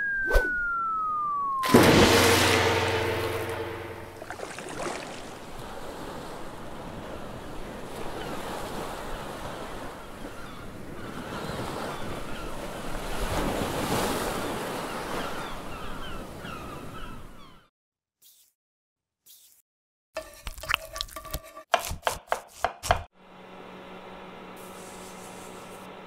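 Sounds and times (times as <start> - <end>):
wind: 0.0 - 17.7
ocean waves washing: 1.6 - 16.7.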